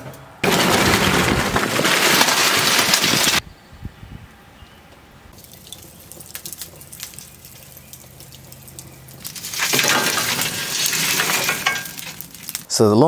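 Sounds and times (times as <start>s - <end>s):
coals rattling out of metal chimney: 0.0s - 3.4s, 5.4s - 12.7s
charcoal crackling and popping: 0.4s - 3.4s, 5.4s - 12.7s.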